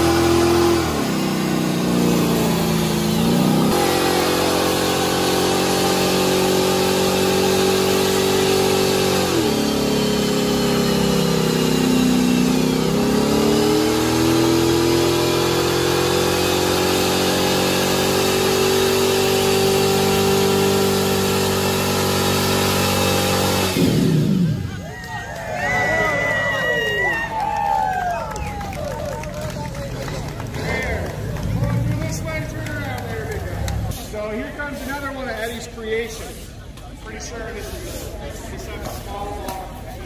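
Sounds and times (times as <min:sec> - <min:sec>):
pickup engine revving high: 0:00.0 - 0:24.8, 0:28.8 - 0:34.7.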